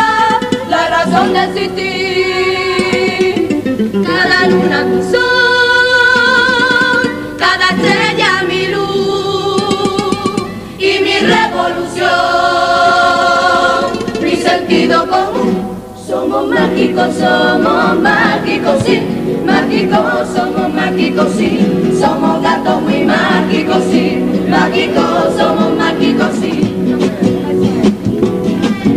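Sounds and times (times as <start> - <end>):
mixed choir singing in harmony: 0.0 - 3.4, 4.0 - 27.2
guitar: 0.0 - 28.9
drum: 18.6 - 20.2, 23.2 - 28.9.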